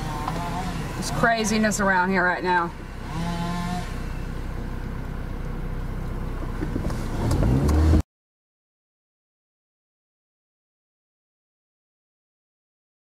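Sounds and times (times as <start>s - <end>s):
car engine idling and revving: 0.0s - 8.1s.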